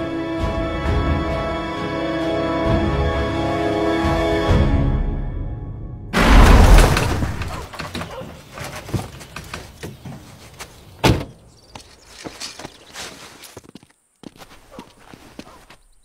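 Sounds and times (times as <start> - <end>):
car door shutting: 11.0 - 11.4.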